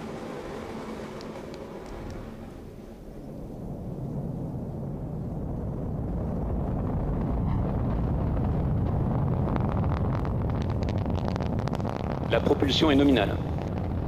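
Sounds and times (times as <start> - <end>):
exhaust crackling: 0.0 - 14.0
rocket engine rumble: 0.0 - 14.0.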